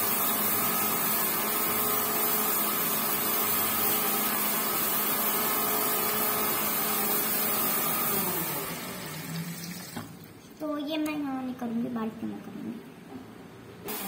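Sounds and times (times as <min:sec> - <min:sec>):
tap water running into sink: 0:09.0 - 0:10.3.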